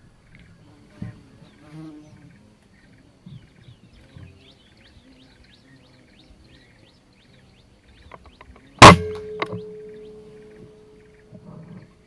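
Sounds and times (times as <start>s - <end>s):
birds chirping: 0.0s - 12.0s
air rifle shot: 8.8s - 9.9s.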